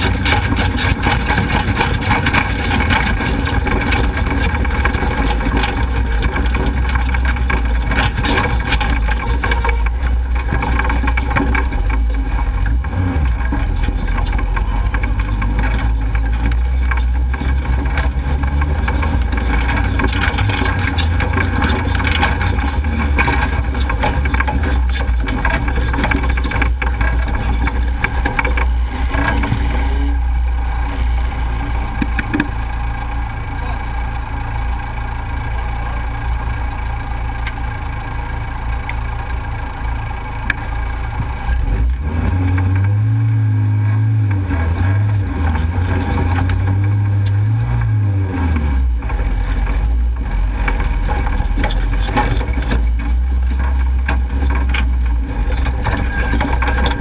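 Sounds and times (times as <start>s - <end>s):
engine drone: 0.0s - 57.0s
tyres on gravel: 0.0s - 57.0s.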